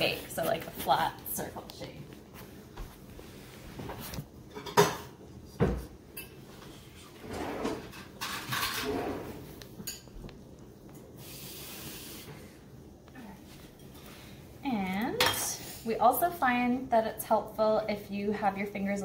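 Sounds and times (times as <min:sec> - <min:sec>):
kitchenware clattering and scraping: 0:04.5 - 0:10.2, 0:15.1 - 0:16.0.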